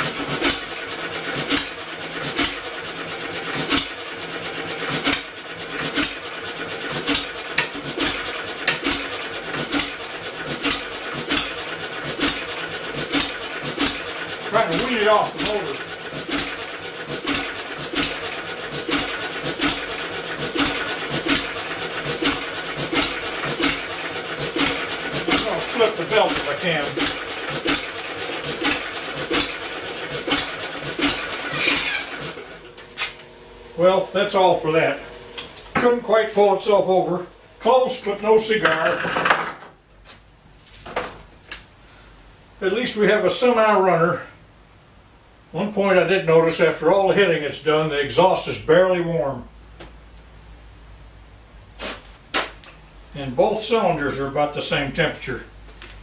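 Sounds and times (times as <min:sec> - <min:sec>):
engine firing with sharp bang: 0:00.0 - 0:04.1, 0:04.8 - 0:32.6
engine turning over with hum: 0:00.0 - 0:39.0.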